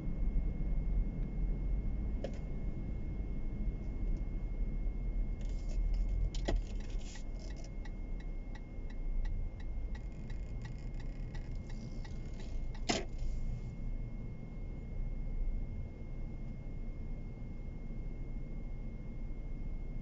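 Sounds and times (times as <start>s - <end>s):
car engine and road rumble: 0.0s - 20.0s
turn signal ticking: 6.3s - 13.4s.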